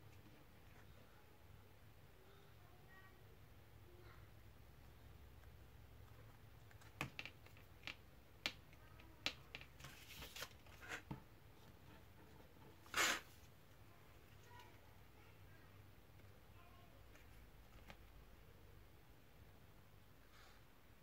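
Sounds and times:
paper rustle: 0:09.8 - 0:11.0
paper rasp: 0:12.8 - 0:13.4.

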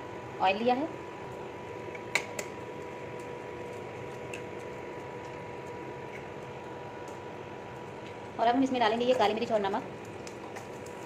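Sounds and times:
faint cooktop whine: 0:00.0 - 0:11.0
egg frying in hot oil: 0:09.9 - 0:11.0.

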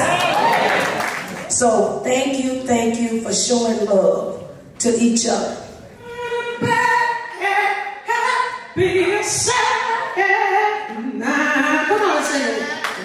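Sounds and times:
woman singing: 0:06.0 - 0:12.8.

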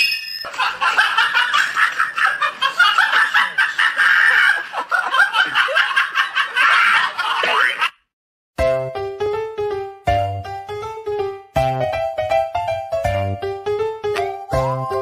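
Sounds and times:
high-pitched laughter: 0:00.4 - 0:08.0.

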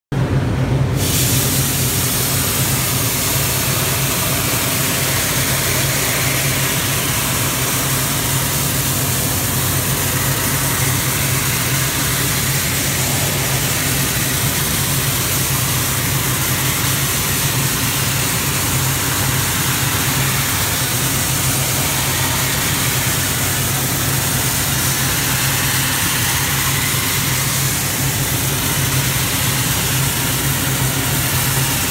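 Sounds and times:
compressed air hissing: 0:00.9 - 0:31.9.

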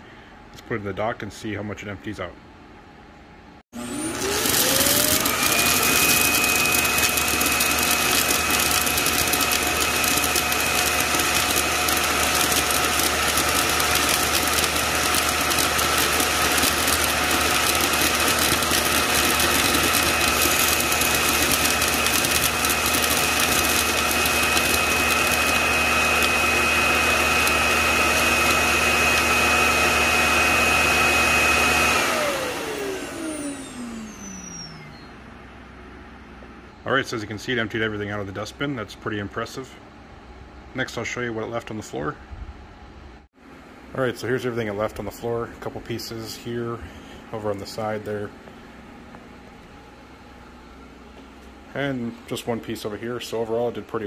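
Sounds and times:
suction motor whine: 0:03.8 - 0:35.4.

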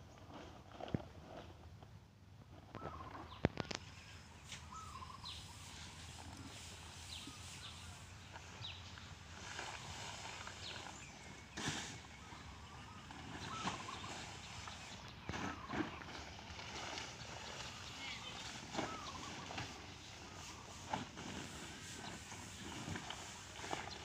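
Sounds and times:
small birds chirping: 0:02.7 - 0:24.0
plastic tarp rustling: 0:13.0 - 0:24.0.

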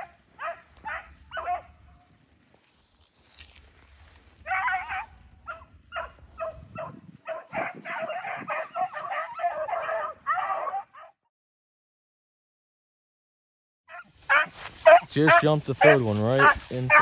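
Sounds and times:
hounds baying and yelping: 0:00.0 - 0:02.2, 0:04.2 - 0:11.2, 0:13.9 - 0:17.0.

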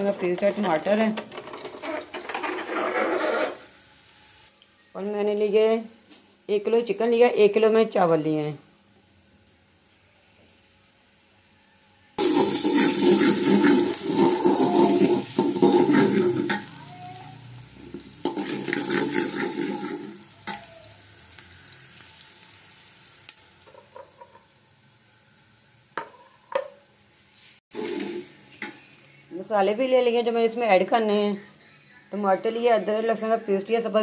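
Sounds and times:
metal ladle scraping pot: 0:00.3 - 0:03.6, 0:12.2 - 0:16.7, 0:18.2 - 0:20.2
onions sizzling in a pot: 0:03.4 - 0:31.3.

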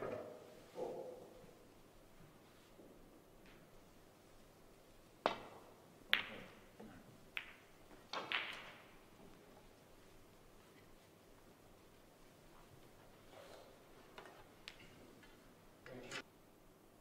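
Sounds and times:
cue striking ball: 0:05.2 - 0:06.6, 0:07.3 - 0:08.9
snooker balls clicking: 0:05.2 - 0:09.8, 0:12.5 - 0:15.4.

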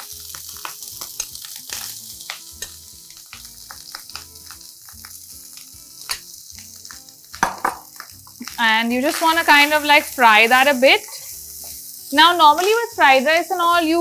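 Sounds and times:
rice sizzling in a wok: 0:00.0 - 0:14.0
spatula scraping a wok: 0:09.1 - 0:13.2.

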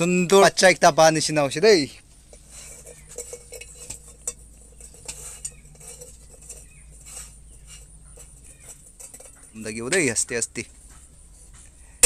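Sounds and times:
light metal clinks: 0:02.3 - 0:11.6.

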